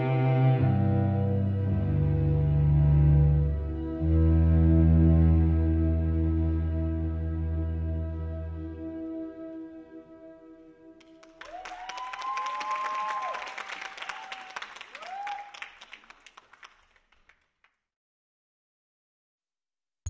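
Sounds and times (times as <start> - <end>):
audience applause: 11.0 - 17.8
whooping cheers: 11.2 - 15.9.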